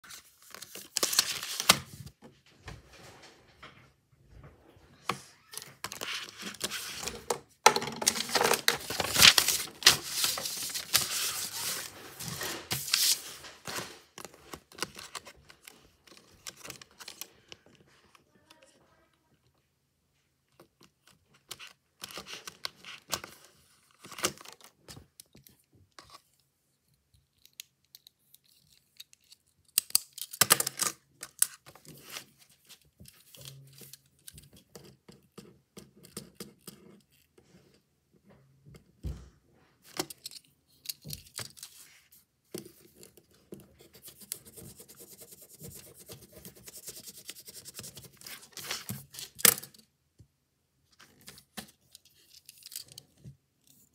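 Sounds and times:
plastic pen pack clicks and rustles: 5.9 - 13.3.

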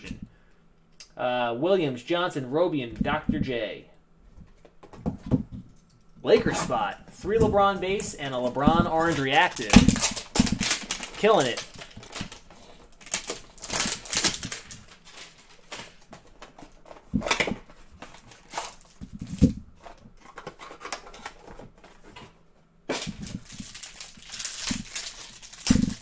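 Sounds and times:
plastic wrapping crinkling: 7.2 - 22.2, 22.9 - 26.0.

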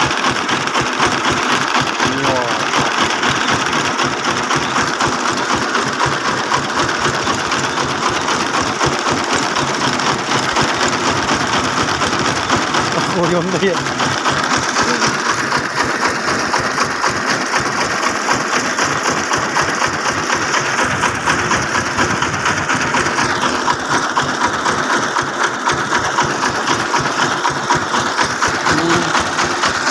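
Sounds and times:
truck engine clattering: 0.0 - 29.9.

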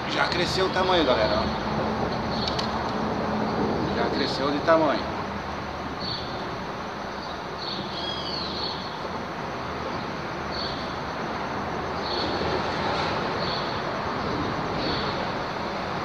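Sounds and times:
traffic rumble on bridge: 0.0 - 16.0
high bird chirps: 7.2 - 9.0.

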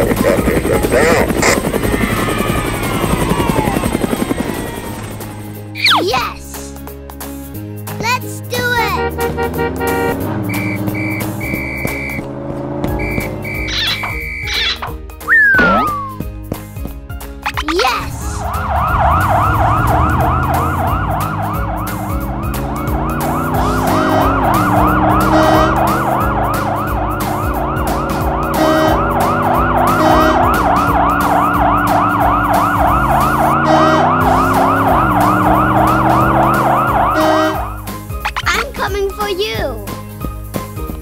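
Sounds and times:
vehicle engine changing pitch: 0.0 - 5.9, 8.9 - 16.3, 17.4 - 38.4
warbling cartoon siren: 1.2 - 5.9, 9.8 - 12.2, 13.0 - 16.2, 17.5 - 37.8.

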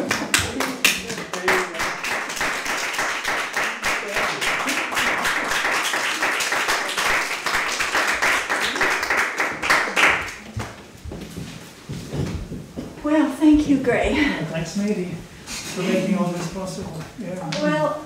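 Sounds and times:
audience applauding: 0.0 - 10.5.

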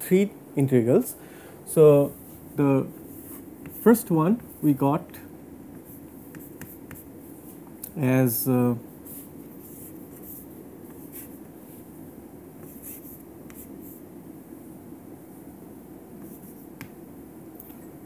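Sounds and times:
low background hum: 0.0 - 18.0
chalk tapping on chalkboard: 3.6 - 7.1, 16.2 - 17.0
chalk scratching on chalkboard: 5.7 - 7.6, 12.6 - 14.0.

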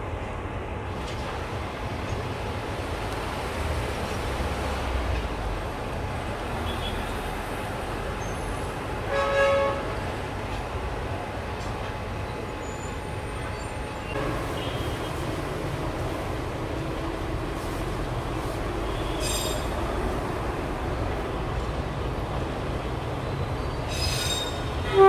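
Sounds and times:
locomotive horn toot: 9.1 - 10.0, 24.8 - 25.0.

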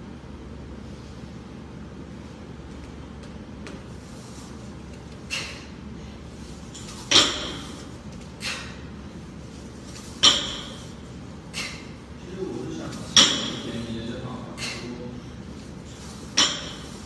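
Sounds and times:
barbell clanking on rubber mats: 7.0 - 7.8, 10.2 - 10.9, 13.1 - 13.7, 16.2 - 17.0.

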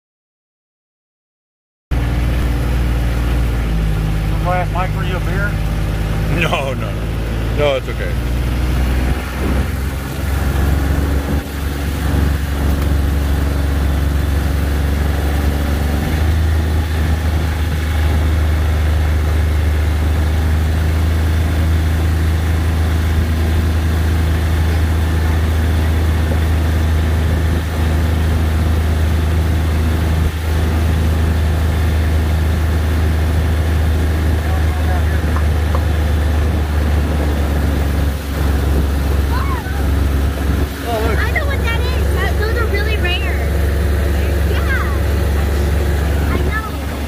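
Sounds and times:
utility vehicle engine driving: 1.9 - 47.0.

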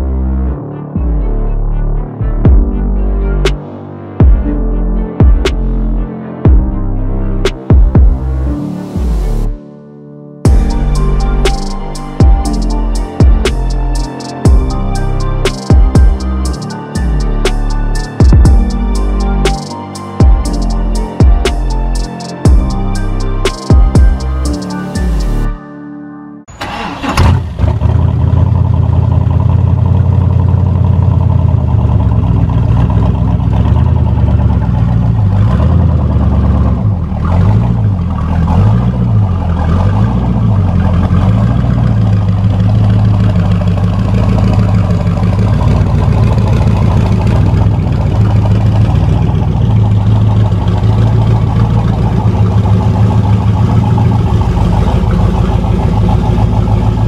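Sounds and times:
car engine idling loudly: 26.6 - 57.0.

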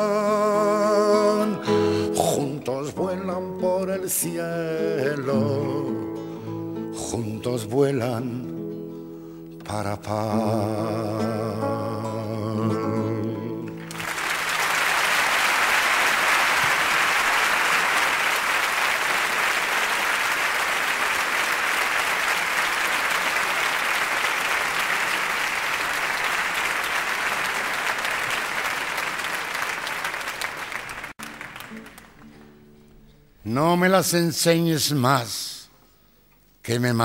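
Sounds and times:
audience applauding: 13.6 - 32.5.

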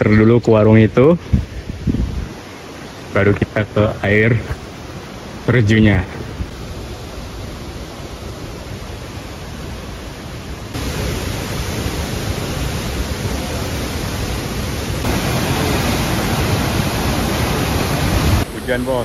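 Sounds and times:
waterfall rushing: 1.5 - 19.0.

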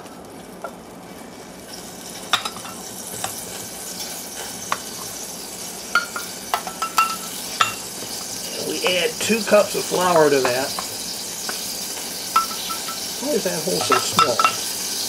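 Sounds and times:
grease sizzling in a saucepan: 0.0 - 15.0
measuring cup clinking: 12.4 - 13.0, 13.8 - 14.6.

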